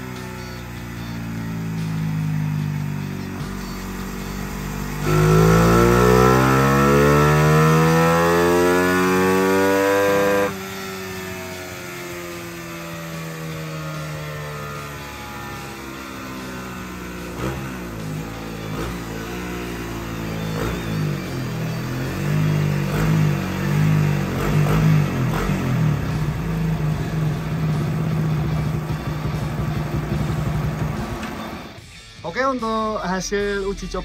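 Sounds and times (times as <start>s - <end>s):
motorcycle engine revving: 0.0s - 31.8s.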